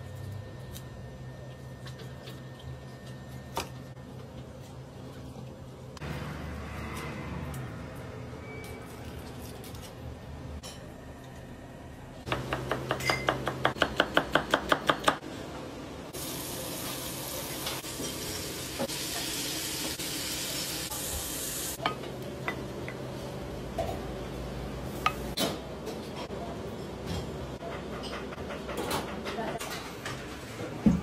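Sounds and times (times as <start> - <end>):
peppers sizzling in oil: 16.2 - 21.8.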